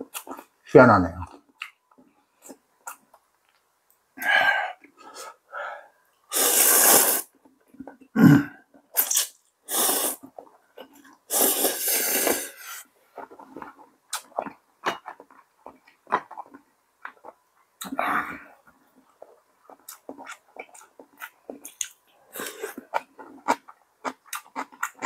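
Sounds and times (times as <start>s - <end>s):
low throat sound: 8.1s - 8.6s
mouth clicks and smacks: 8.7s - 12.4s, 13.2s - 18.0s, 19.1s - 25.0s.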